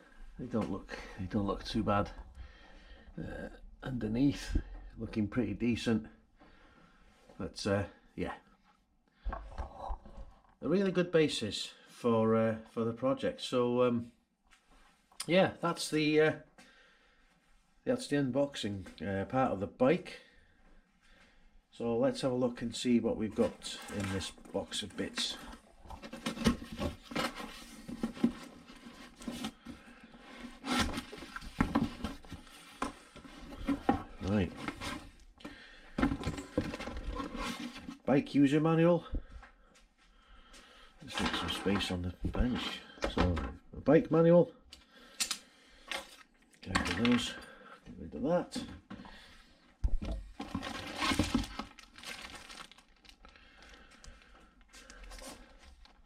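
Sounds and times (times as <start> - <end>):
cardboard flaps scraping and rustling: 23.3 - 35.2, 36.1 - 38.0, 50.4 - 52.7
plastic bag crinkling: 50.4 - 56.0.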